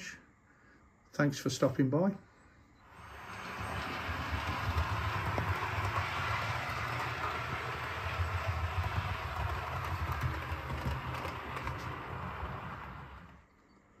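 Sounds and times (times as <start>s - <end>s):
model train rumbling on track: 2.9s - 13.5s.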